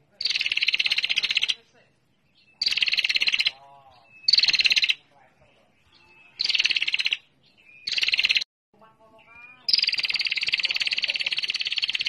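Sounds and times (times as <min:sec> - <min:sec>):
bird chattering trill: 0:00.1 - 0:01.6, 0:02.3 - 0:08.5, 0:09.2 - 0:12.0
faint lower bird calls: 0:02.2 - 0:08.4, 0:09.1 - 0:12.0.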